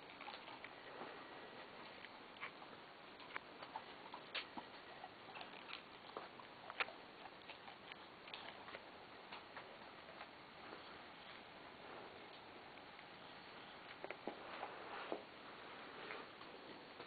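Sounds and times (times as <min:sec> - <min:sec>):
steady low hiss: 0:00.0 - 0:17.0.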